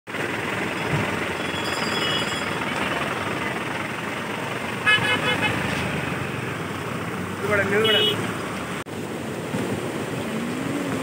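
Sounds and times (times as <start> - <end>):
river in flood rushing: 0.2 - 11.0
vehicle horn short beeps: 1.4 - 2.6, 4.9 - 5.6.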